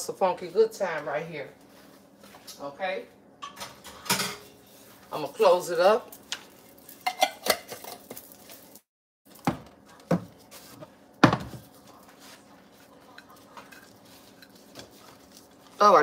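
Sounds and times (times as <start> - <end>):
dishes knocking: 11.2 - 11.6.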